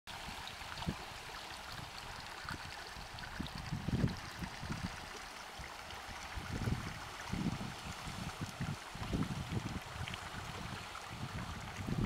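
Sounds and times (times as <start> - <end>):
creek babbling over stones: 0.1 - 12.0
low rumbles on microphone: 6.4 - 12.0.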